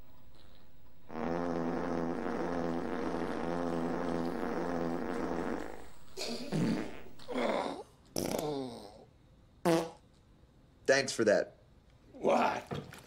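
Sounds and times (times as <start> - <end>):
short rough fart burst: 0.3 - 8.6, 9.6 - 10.0
long fart: 0.3 - 9.0, 9.6 - 10.0.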